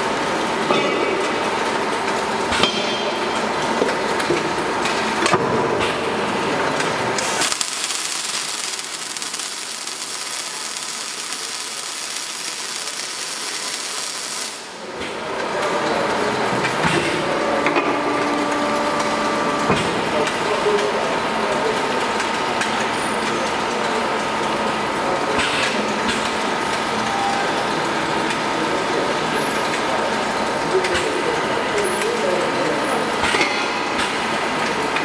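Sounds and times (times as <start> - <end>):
clattering machine noise: 0.0 - 35.0
steady hum: 7.2 - 14.8
welding arc hissing: 7.2 - 14.8.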